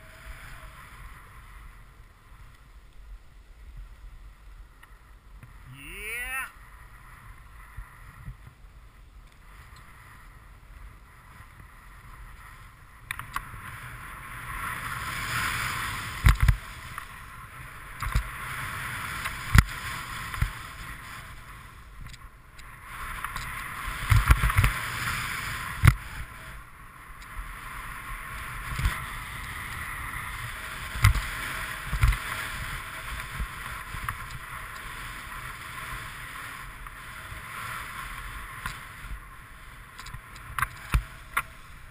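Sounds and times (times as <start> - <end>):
snowboard hissing on snow: 13.8 - 21.8, 22.8 - 26.6.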